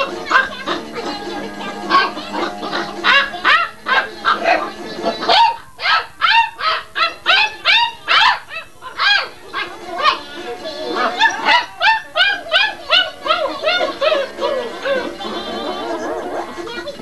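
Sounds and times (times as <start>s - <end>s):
puppy barking in high yaps: 1.9s - 4.6s, 5.2s - 10.2s, 11.0s - 15.0s.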